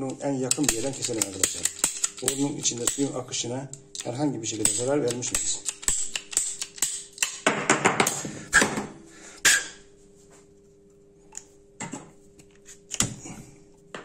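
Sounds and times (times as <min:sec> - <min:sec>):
pipe shears cutting plastic pipe: 0:00.5 - 0:03.1
sharp snap of pipe cut: 0:09.4 - 0:09.8.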